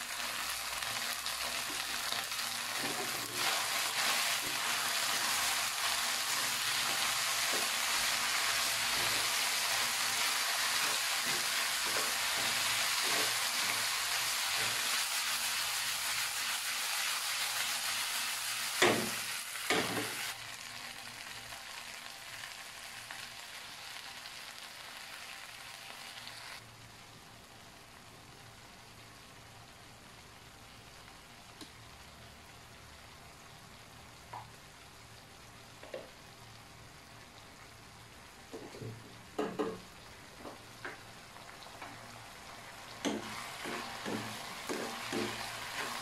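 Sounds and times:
food sizzling in a wok: 0.0s - 46.0s
wooden spatula knocking on pan: 38.6s - 39.8s, 43.0s - 45.4s.

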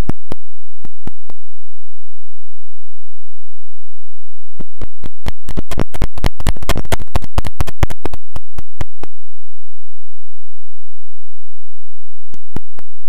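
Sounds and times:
sharp clicks: 4.6s - 9.1s.

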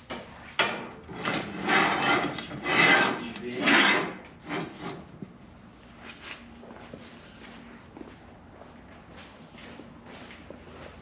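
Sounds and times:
metal bar scraping along rail: 1.0s - 5.1s.

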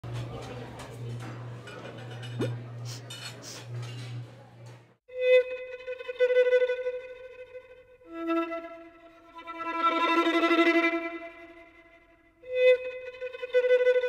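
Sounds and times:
violin long bowed notes: 5.1s - 14.0s.

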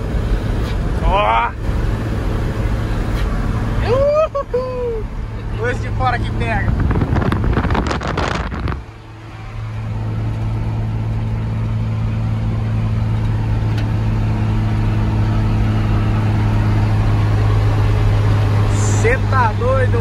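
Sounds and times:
diesel truck engine drone: 0.0s - 20.0s
rush of air noise: 6.5s - 9.0s.

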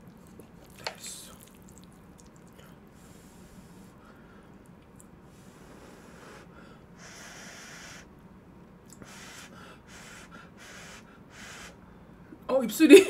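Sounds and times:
noodles slurped: 0.0s - 2.8s.

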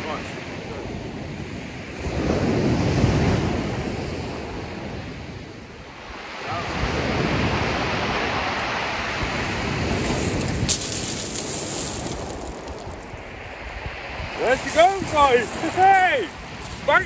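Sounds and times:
wind buffeting microphone: 0.0s - 17.0s
waves washing over pebbles: 5.9s - 17.0s.

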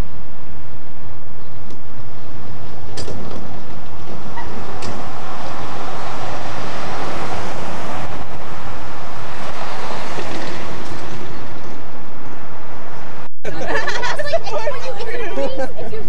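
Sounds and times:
street traffic rushing: 0.0s - 16.0s
pickup truck pulling up: 2.0s - 13.9s.

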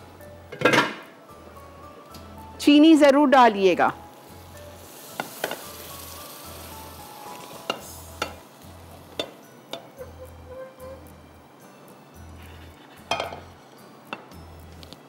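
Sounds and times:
food sizzling in a pan: 4.0s - 15.0s.

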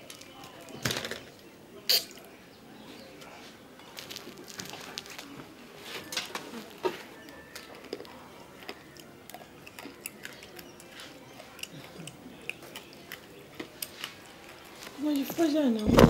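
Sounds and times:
mouth clicks: 1.9s - 2.3s
chips crunching: 3.8s - 5.4s, 6.1s - 15.3s.

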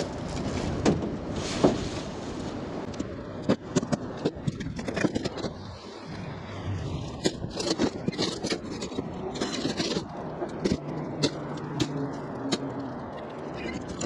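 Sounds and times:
scrap metal clanking and scraping: 6.8s - 12.7s.

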